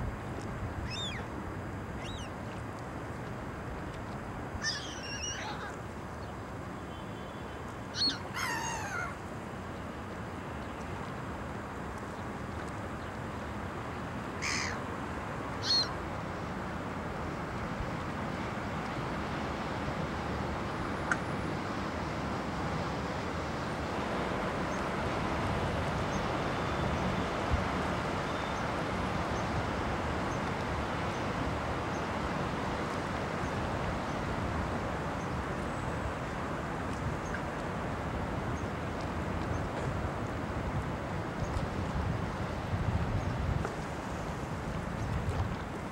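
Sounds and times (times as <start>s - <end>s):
river ambience: 0.0s - 45.9s
bird calls: 0.8s - 1.3s, 2.0s - 2.3s, 4.6s - 5.8s, 8.0s - 9.2s, 15.6s - 15.9s.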